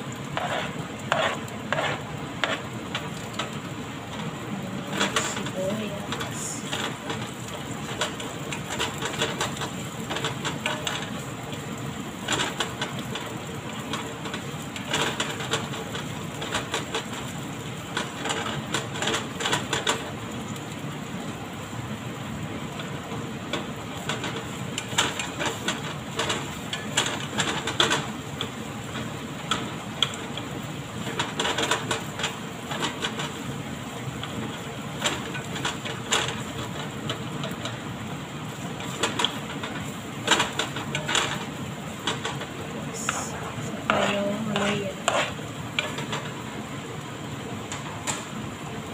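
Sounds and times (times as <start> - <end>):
spatula scraping a pan: 0.0 - 11.2, 23.5 - 37.9, 38.5 - 46.6
onions sizzling in oil: 0.0 - 48.9.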